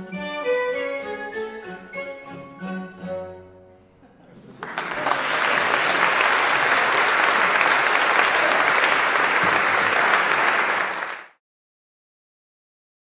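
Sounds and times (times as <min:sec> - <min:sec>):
audience applauding: 0:04.5 - 0:11.4.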